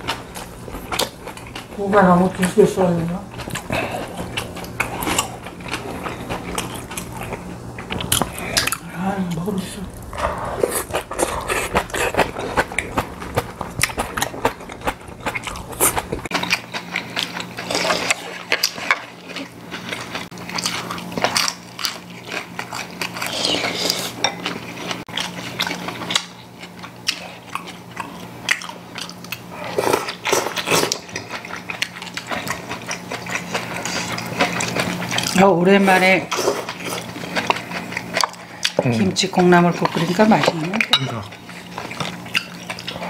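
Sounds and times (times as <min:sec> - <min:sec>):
people chewing: 0:00.0 - 0:43.0
chopsticks tapping ceramic bowls: 0:38.8 - 0:41.4.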